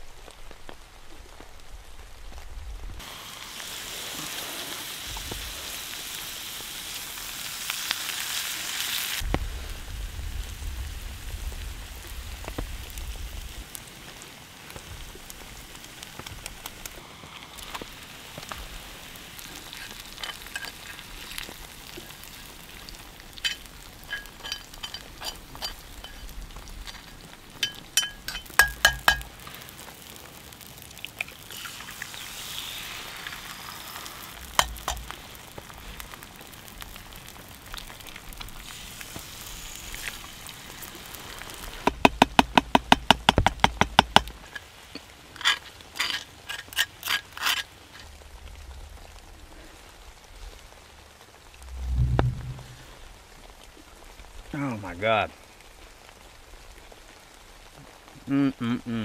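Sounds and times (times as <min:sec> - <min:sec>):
food sizzling in a skillet: 0:03.0 - 0:41.9
metal utensil scraping pan: 0:19.8 - 0:21.0, 0:23.4 - 0:26.3, 0:26.9 - 0:29.3, 0:45.4 - 0:48.0.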